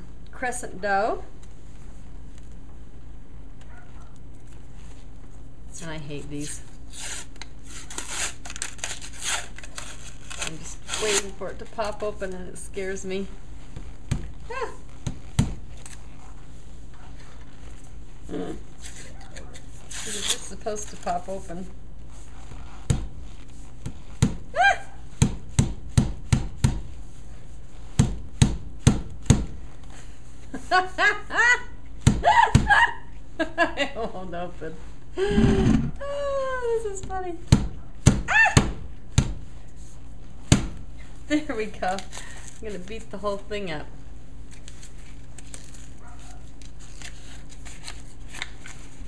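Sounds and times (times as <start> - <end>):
steady low hum: 0.0 - 49.0
paper wrapper crinkling: 6.9 - 12.4, 18.8 - 23.8, 44.4 - 49.0.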